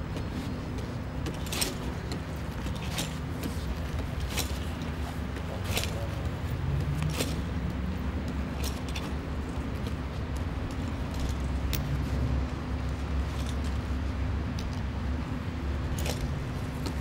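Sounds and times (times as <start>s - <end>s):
metallic clinks of climbing gear: 0.8s - 7.4s, 8.5s - 12.1s, 12.8s - 14.9s.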